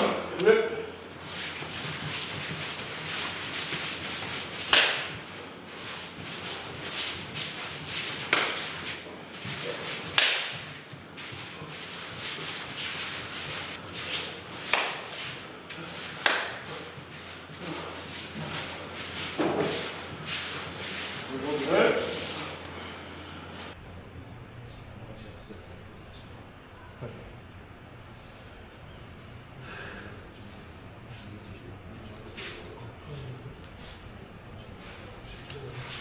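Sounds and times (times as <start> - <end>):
sharp slapping impacts: 1.5 - 5.4, 6.3 - 11.5, 12.2 - 16.8.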